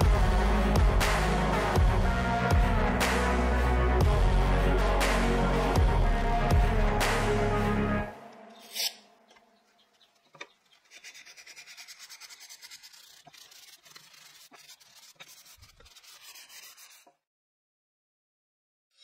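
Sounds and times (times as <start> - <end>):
sandpaper rubbing on wood: 10.6 - 17.1.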